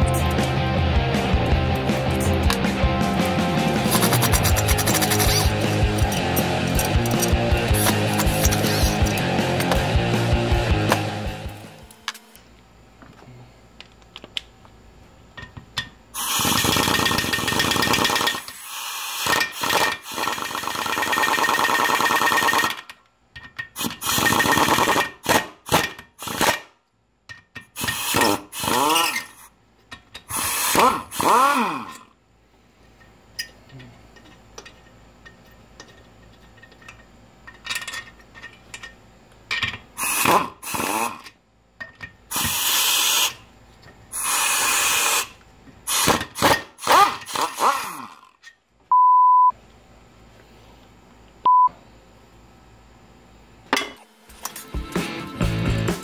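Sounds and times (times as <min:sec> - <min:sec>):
air impact wrench whirring: 0:02.0 - 0:12.4, 0:16.2 - 0:22.8, 0:23.8 - 0:26.6, 0:27.8 - 0:29.5, 0:30.3 - 0:32.1, 0:40.0 - 0:41.3, 0:42.3 - 0:43.5, 0:44.1 - 0:48.4
short steady beep: 0:48.9 - 0:49.6, 0:51.4 - 0:51.8.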